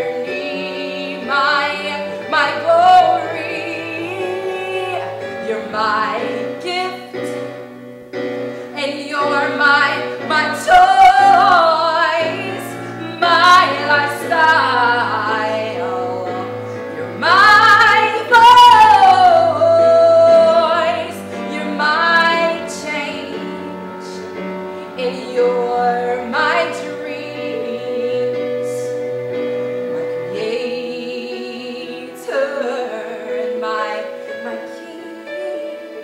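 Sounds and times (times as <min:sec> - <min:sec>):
woman singing vocal runs: 0:00.0 - 0:07.6, 0:08.7 - 0:24.3
sustained backing chords: 0:00.0 - 0:36.0.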